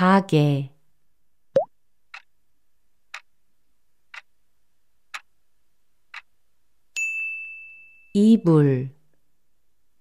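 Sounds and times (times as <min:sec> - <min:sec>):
clock ticking: 0:04.1 - 0:04.3, 0:05.1 - 0:05.3.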